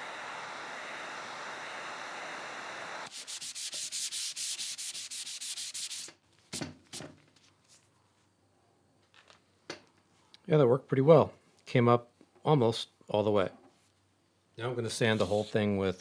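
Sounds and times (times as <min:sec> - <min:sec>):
steamer hissing: 0:00.0 - 0:05.9.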